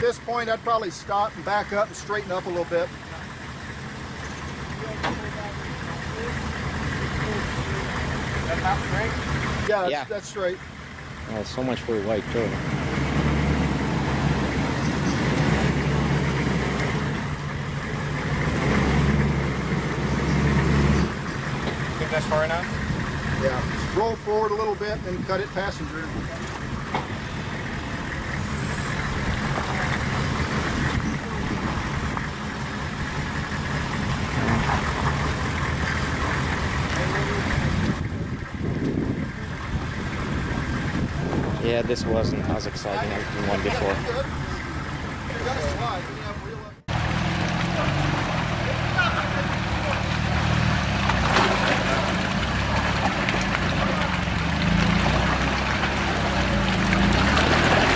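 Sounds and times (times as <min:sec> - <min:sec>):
truck engine running low: 0:00.0 - 0:57.9
water splashing around tyres: 0:00.3 - 0:41.8, 0:42.6 - 0:57.9.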